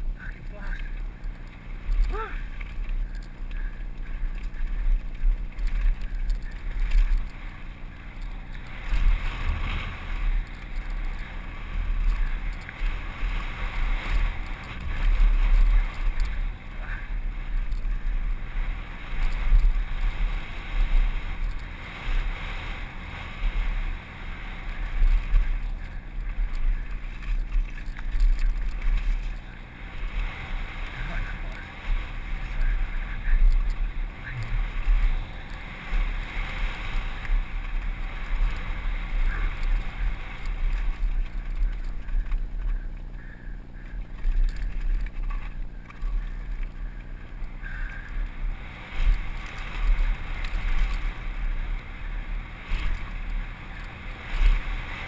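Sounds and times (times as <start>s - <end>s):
wind buffeting microphone: 0.0s - 55.0s
bike rattling over loose rock: 24.9s - 29.6s.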